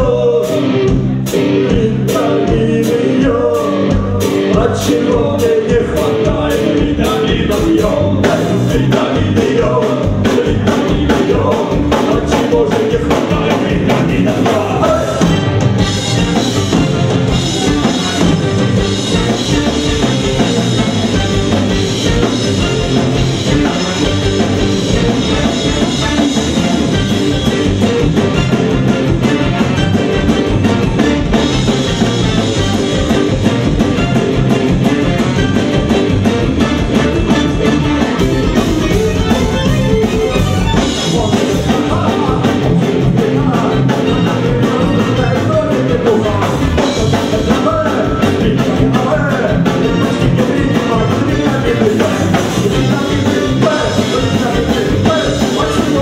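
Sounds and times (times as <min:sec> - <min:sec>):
man singing into microphone: 0:00.0 - 0:15.2, 0:40.9 - 0:56.0
bass guitar: 0:00.0 - 0:56.0
drum kit fast beat: 0:00.0 - 0:56.0
electric guitar: 0:00.0 - 0:56.0.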